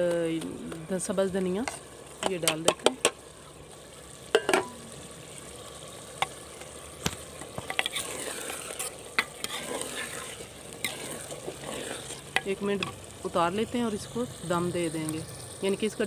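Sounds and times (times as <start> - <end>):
low sizzle: 0.0 - 16.0
spoon scraping clay pot: 7.5 - 13.0.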